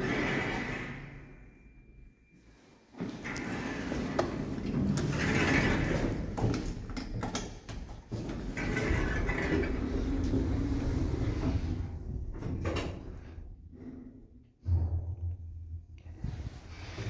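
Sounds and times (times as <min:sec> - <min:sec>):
lift doors closing: 0:00.0 - 0:01.5, 0:08.2 - 0:13.3.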